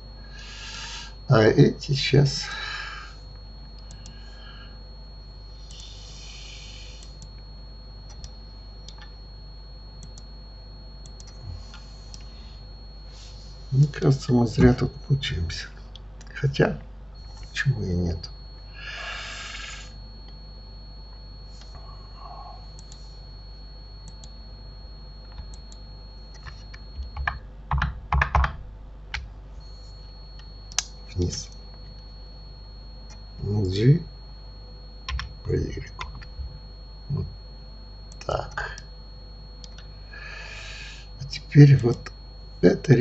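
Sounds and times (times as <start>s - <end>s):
electrical hum: 0.0s - 43.0s
faint high whine: 0.0s - 43.0s
computer keyboard keystrokes: 8.1s - 9.1s, 25.2s - 29.3s, 35.1s - 35.3s, 36.0s - 36.3s, 39.6s - 39.9s.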